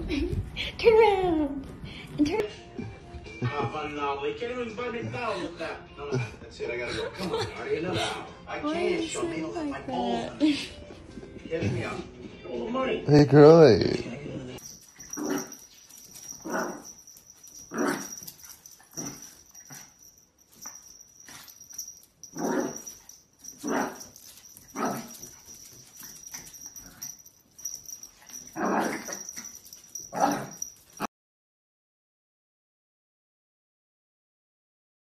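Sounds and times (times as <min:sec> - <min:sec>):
small dog barking: 0:15.1 - 0:15.6, 0:16.3 - 0:17.0, 0:18.9 - 0:19.9, 0:22.3 - 0:25.4, 0:28.4 - 0:31.1.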